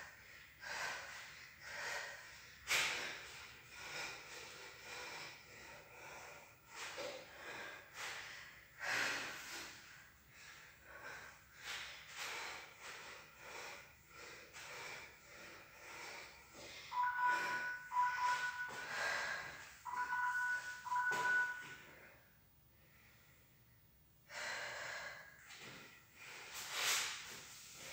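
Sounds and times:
heavy rhythmic breathing: 0.0 - 22.2, 24.2 - 27.9
phone timer beeping: 16.9 - 18.9, 19.9 - 21.8.

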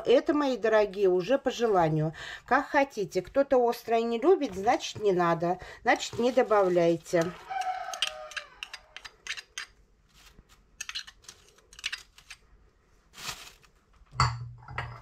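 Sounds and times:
plastic bag rustling: 5.9 - 7.5, 10.0 - 10.7, 13.0 - 14.1.

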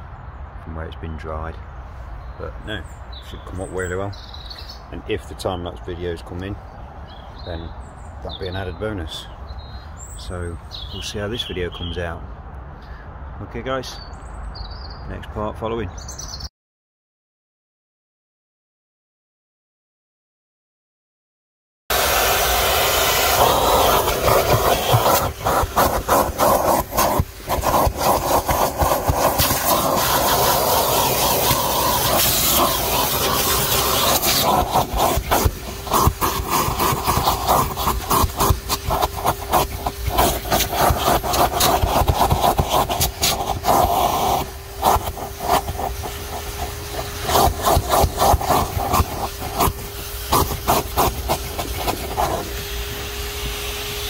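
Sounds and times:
nozzle scraping carpet: 21.9 - 54.0
vacuum cleaner running: 21.9 - 54.0.

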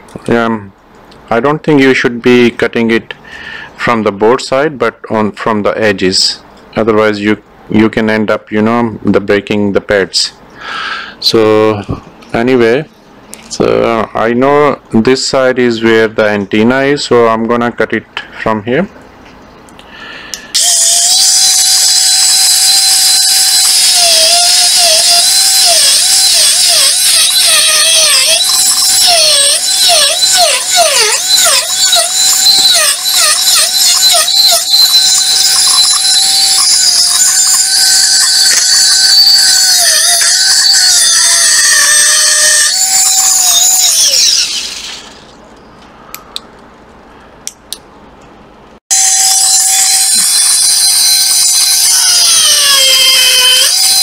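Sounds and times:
rotary tool cutting metal: 20.6 - 45.3, 48.9 - 54.0.

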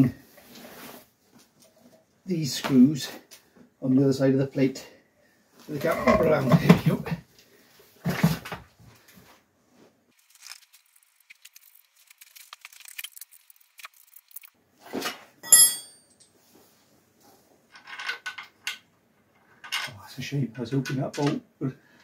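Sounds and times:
ringing clink of steel on steel: 15.4 - 16.3
metal bolts and spanner clinking: 15.4 - 16.4.

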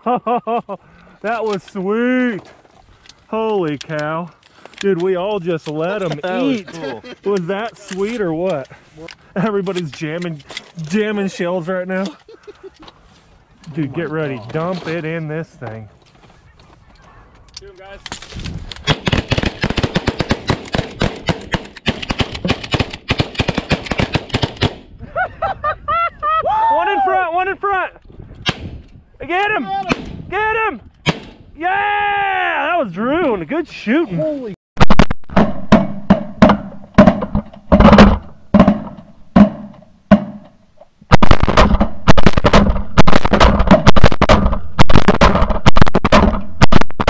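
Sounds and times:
shotguns firing rapidly: 18.9 - 24.8, 41.1 - 47.0
shotgun fire: 41.1 - 47.0.

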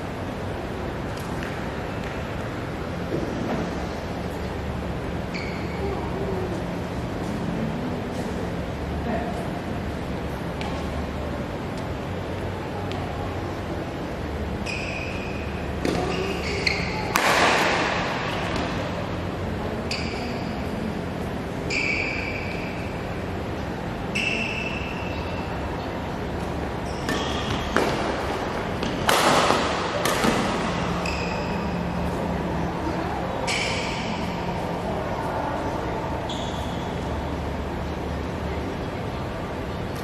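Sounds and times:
shoes squeaking on court floor: 5.3 - 6.0, 14.6 - 17.2, 26.3 - 32.2, 36.2 - 37.4
rackets hitting shuttlecock: 14.6 - 18.9, 26.8 - 32.2, 33.4 - 34.4.

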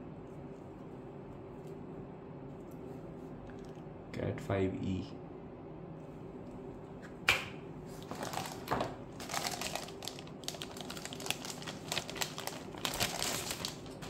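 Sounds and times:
plastic bag crinkling: 8.0 - 14.0.

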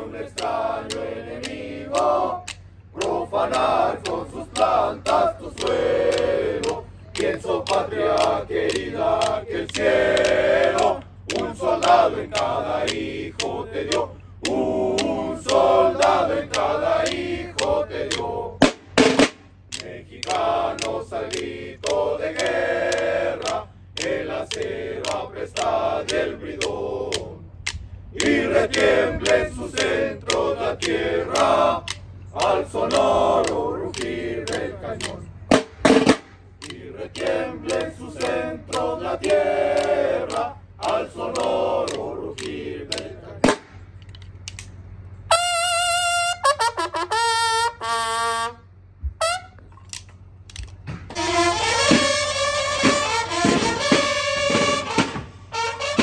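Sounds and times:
soldiers singing in unison: 0.0 - 43.8, 51.1 - 56.0
sharp clicks: 0.2 - 45.2, 49.6 - 50.9
bugle call: 45.3 - 49.7, 51.1 - 56.0.

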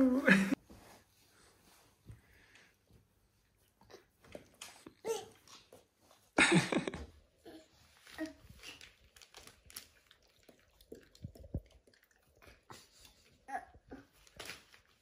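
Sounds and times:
foil bag crinkling: 8.0 - 10.4.

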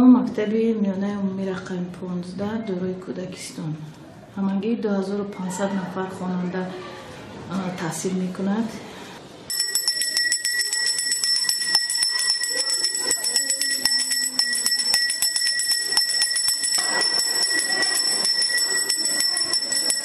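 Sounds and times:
school bell ringing: 9.5 - 20.0.

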